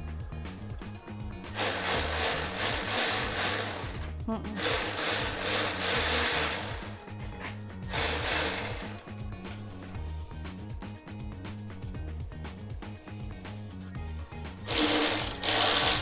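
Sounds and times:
electric ratchet running: 0:01.5 - 0:07.1, 0:07.9 - 0:09.1, 0:14.7 - 0:16.0.

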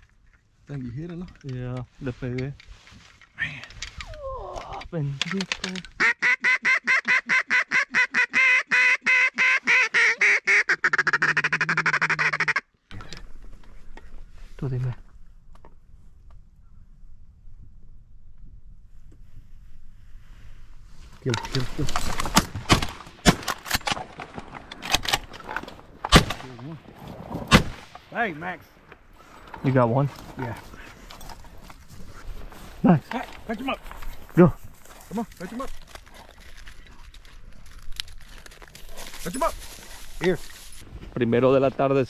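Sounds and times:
duck call quacks: 0:06.0 - 0:12.7
shotgun blasts: 0:26.1 - 0:26.6, 0:27.5 - 0:28.0.

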